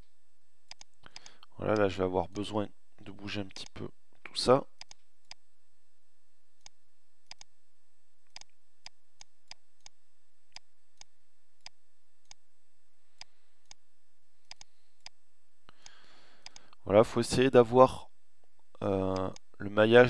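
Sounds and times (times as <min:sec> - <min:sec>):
faint steady hiss: 0:00.0 - 0:20.0
computer mouse clicking: 0:00.7 - 0:01.9, 0:04.8 - 0:05.4, 0:06.6 - 0:07.5, 0:08.3 - 0:12.4, 0:14.4 - 0:15.2, 0:15.8 - 0:16.8.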